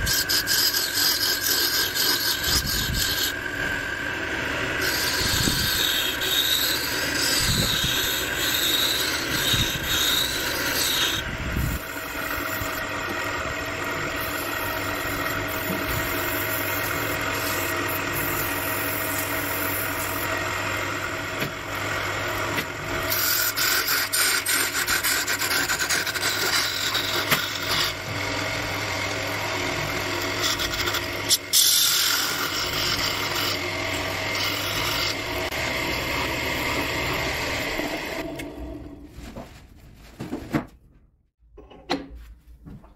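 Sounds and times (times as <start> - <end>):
sandpaper rubbing spinning wood: 0.0 - 3.5, 4.6 - 20.4, 23.0 - 28.2, 29.8 - 38.2
wood lathe humming: 0.0 - 39.0
turning tool scraping wood: 0.0 - 40.3.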